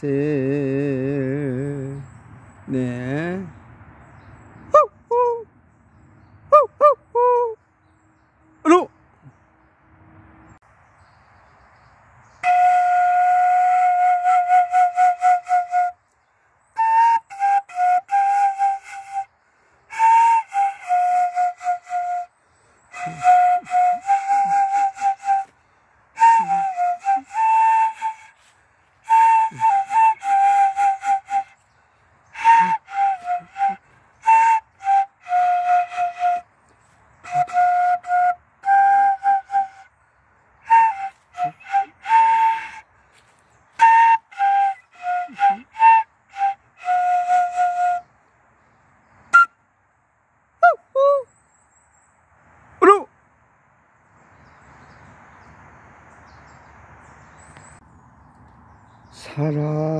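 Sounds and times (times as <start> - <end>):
high flute-like whistled melody: 4.6 - 5.5, 6.5 - 7.6, 12.2 - 25.6, 26.2 - 40.0, 40.6 - 48.2, 49.3 - 49.7, 50.6 - 52.0.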